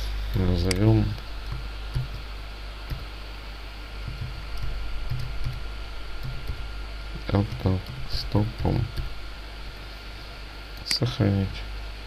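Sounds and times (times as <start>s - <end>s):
background hiss: 0.0s - 12.0s
low hum: 0.0s - 12.0s
keyboard keystrokes: 1.5s - 2.2s.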